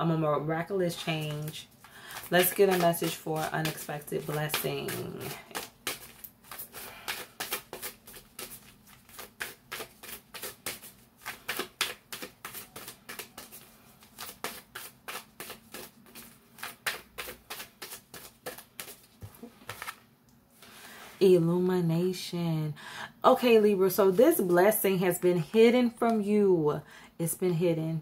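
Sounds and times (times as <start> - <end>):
cards being shuffled: 1.0 - 20.0.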